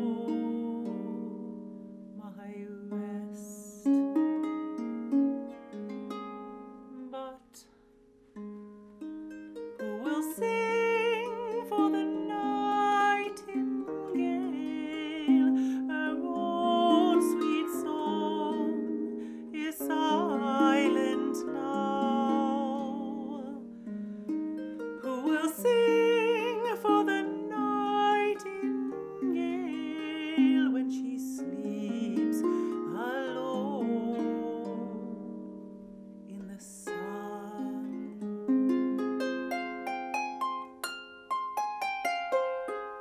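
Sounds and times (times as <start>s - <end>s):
woman singing with vibrato: 0.0s - 1.5s, 2.2s - 4.0s, 6.9s - 7.7s, 9.8s - 23.7s, 25.0s - 35.3s, 36.3s - 38.2s.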